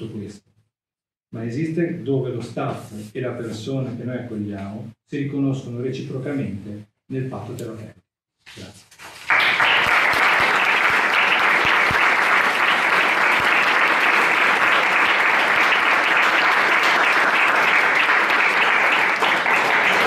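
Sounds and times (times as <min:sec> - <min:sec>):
audience applauding: 0:09.2 - 0:20.0.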